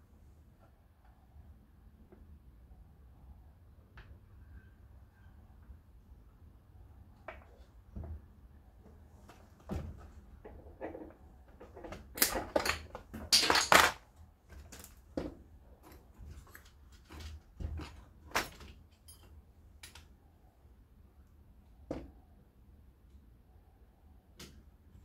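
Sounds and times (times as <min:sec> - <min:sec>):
hand tools and metal parts clicking: 0:15.8 - 0:20.1.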